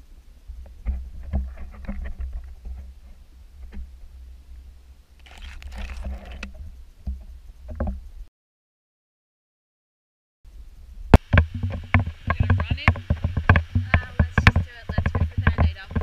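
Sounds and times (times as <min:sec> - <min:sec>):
muffled underwater rumble: 0:10.5 - 0:16.0
hissing water noise: 0:11.1 - 0:16.0.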